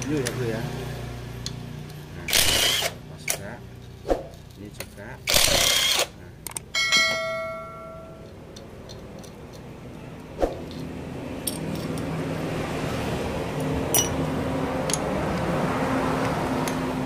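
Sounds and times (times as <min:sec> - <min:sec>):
metal part ringing: 0:05.7 - 0:09.7, 0:13.9 - 0:15.0
metallic clinks of tools: 0:10.6 - 0:12.1, 0:13.6 - 0:14.2.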